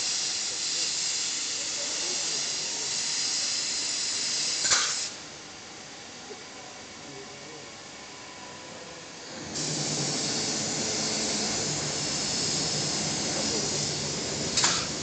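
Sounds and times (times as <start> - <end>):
paint spray gun hissing: 0.0 - 5.2, 9.6 - 15.0.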